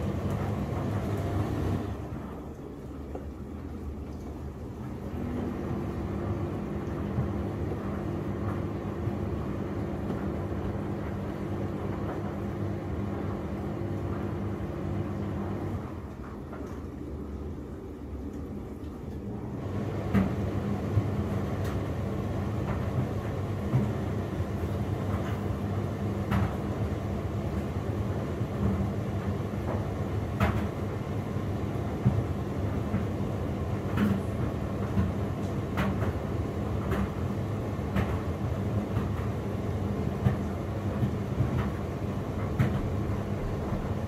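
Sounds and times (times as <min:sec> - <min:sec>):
washing machine motor hum: 0:00.0 - 0:44.0
wet laundry knocking in drum: 0:19.8 - 0:27.6, 0:28.5 - 0:44.0.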